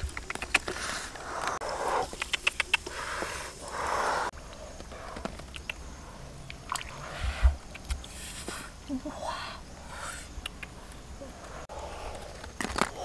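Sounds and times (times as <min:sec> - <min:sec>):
eggs clicking together: 0:02.1 - 0:02.9, 0:10.4 - 0:10.8.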